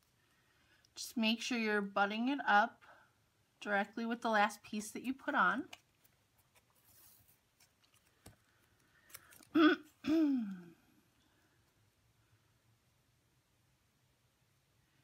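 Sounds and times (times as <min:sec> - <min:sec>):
tape rustling: 0:05.6 - 0:10.0
woman humming hmm: 0:09.6 - 0:10.9.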